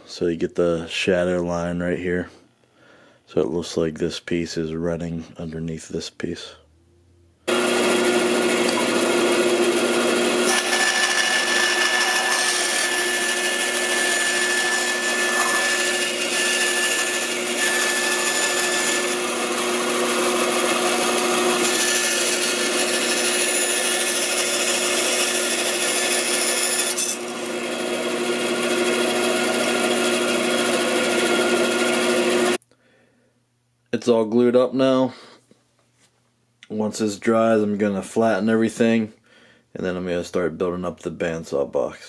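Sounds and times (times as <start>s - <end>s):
bandsaw cutting wood: 7.5s - 32.6s.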